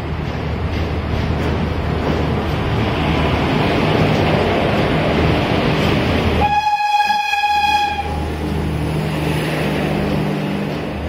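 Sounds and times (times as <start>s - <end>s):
train coaches rumbling on rails: 0.0s - 11.0s
locomotive horn blast: 6.4s - 8.3s.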